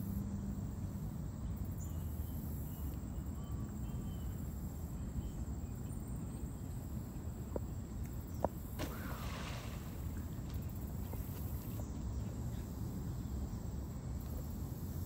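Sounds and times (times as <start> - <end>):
bird splashing into water: 8.6 - 11.8.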